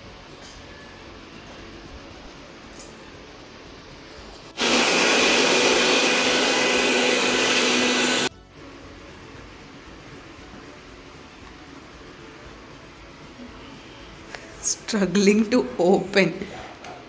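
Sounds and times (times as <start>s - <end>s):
mixer grinder whirring: 4.5s - 8.3s.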